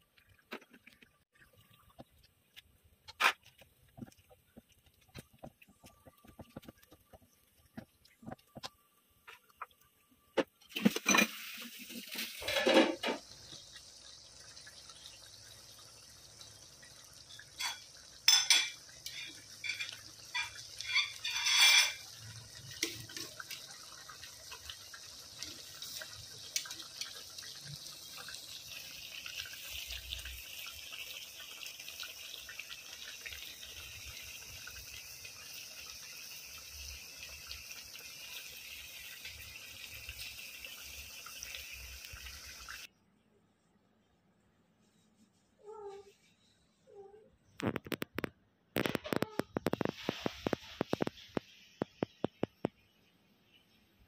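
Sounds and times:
fish sizzling in a pan: 0:10.8 - 0:42.9, 0:48.8 - 0:52.6
spatula scraping a pan: 0:17.6 - 0:22.2.

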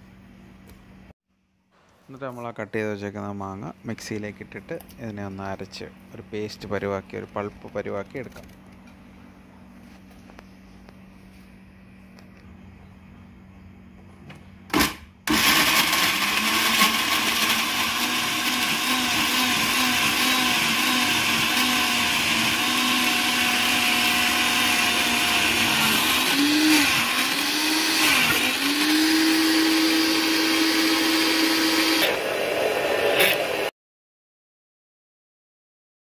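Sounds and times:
electric blender motor pureeing fruit: 0:14.8 - 0:33.7.

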